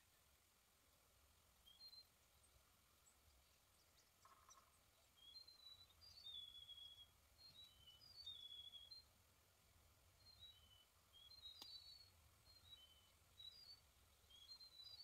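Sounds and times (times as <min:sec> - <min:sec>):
songbird whistling: 0:01.6 - 0:02.1, 0:04.5 - 0:09.1, 0:10.2 - 0:15.0.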